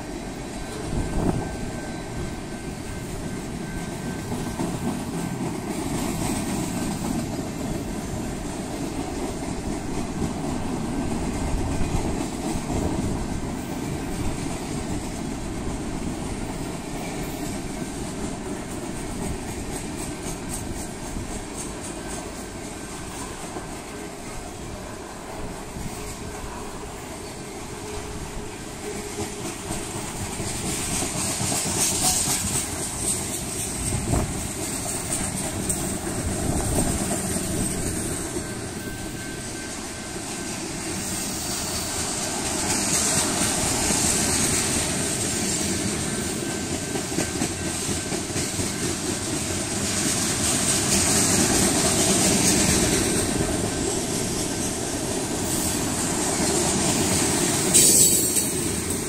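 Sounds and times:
freight train rolling past: 0:00.0 - 0:59.0
wheels clicking over rail joints: 0:25.4 - 0:59.0.

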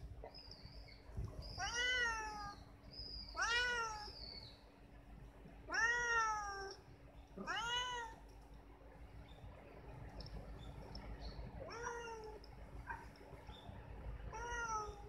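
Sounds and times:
cat meowing: 0:01.6 - 0:02.6, 0:03.3 - 0:04.1, 0:05.7 - 0:06.8, 0:07.4 - 0:08.2, 0:11.7 - 0:12.4, 0:14.3 - 0:15.0.

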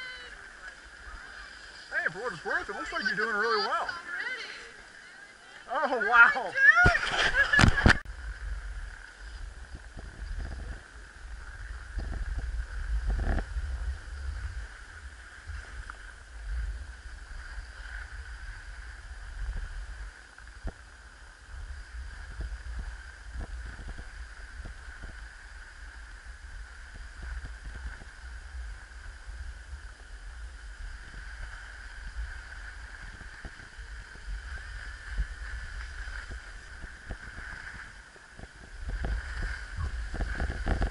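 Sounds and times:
wind rumbling on microphone: 0:06.5 - 0:40.9
scrapes and clicks from snow: 0:06.8 - 0:08.0.

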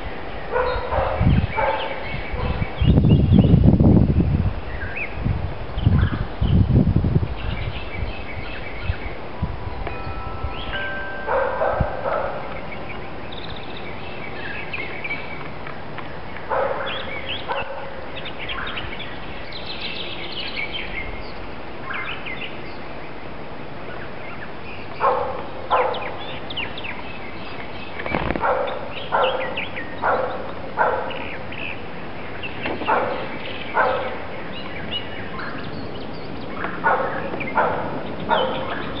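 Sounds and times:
birds chirping: 0:00.0 - 0:03.6, 0:07.4 - 0:23.2, 0:23.8 - 0:39.0
dog barking: 0:00.5 - 0:02.6, 0:11.3 - 0:12.5, 0:16.5 - 0:18.0, 0:25.0 - 0:26.1, 0:28.4 - 0:31.2, 0:32.9 - 0:34.2, 0:36.8 - 0:38.9.

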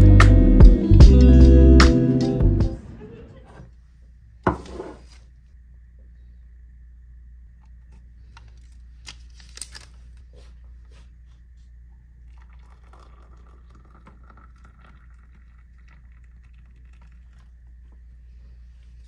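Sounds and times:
paper wrapper crinkling and tearing: 0:08.4 - 0:10.2
hot water pouring into a mug: 0:12.2 - 0:18.0.

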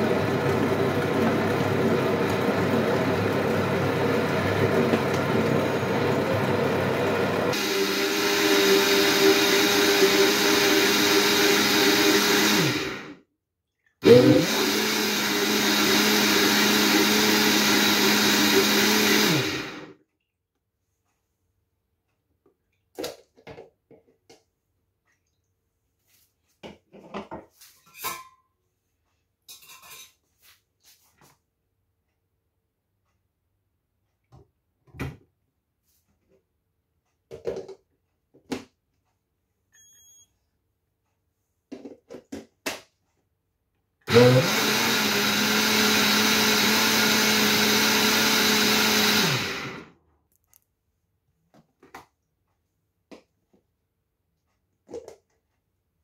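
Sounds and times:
blender motor running: 0:00.0 - 0:13.2, 0:14.0 - 0:19.9, 0:44.1 - 0:49.9
kitchen items clinking and knocking: 0:26.6 - 0:28.5, 0:29.5 - 0:30.2.

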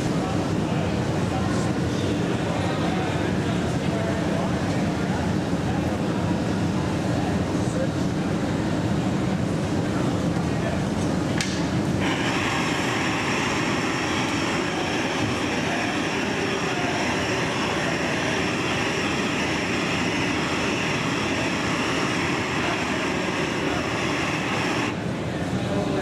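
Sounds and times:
low burner rumble: 0:00.0 - 0:26.0
gas torch flame hissing: 0:11.4 - 0:25.0.

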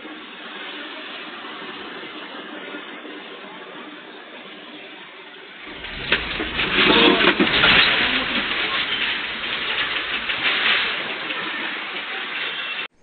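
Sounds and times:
deep earthquake rumble: 0:05.7 - 0:12.2
boxed goods rattling on shelves: 0:05.7 - 0:13.0.

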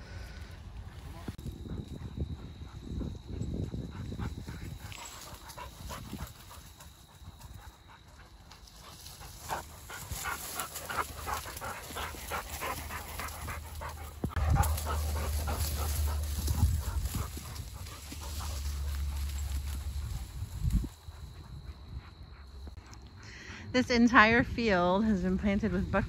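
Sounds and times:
wind rumble on microphone: 0:00.0 - 0:07.7, 0:09.2 - 0:22.8, 0:23.6 - 0:26.0
dog panting: 0:01.5 - 0:20.1.

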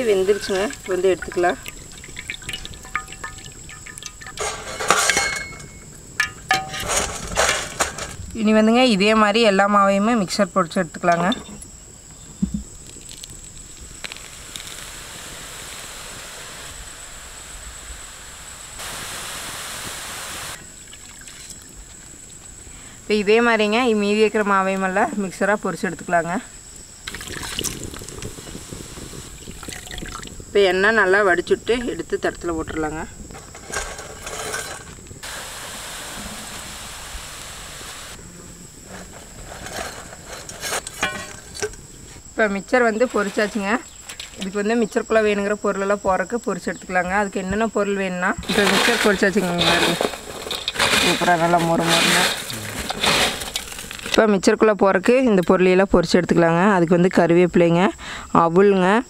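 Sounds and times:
hot oil sizzling and bubbling: 0:00.0 - 0:08.3, 0:11.7 - 0:22.8, 0:26.7 - 0:33.3, 0:34.2 - 0:38.9.

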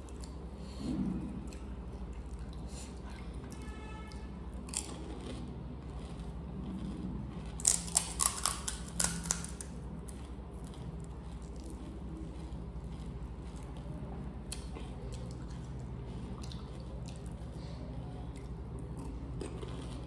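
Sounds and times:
crisp food crunching: 0:04.5 - 0:17.6, 0:18.3 - 0:20.0.

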